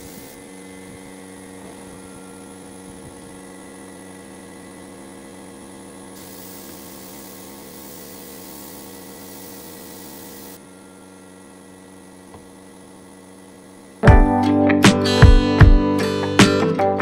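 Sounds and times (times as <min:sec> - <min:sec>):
spray gun air hissing: 0:00.0 - 0:00.6, 0:06.1 - 0:10.6
machine hum: 0:00.0 - 0:14.6.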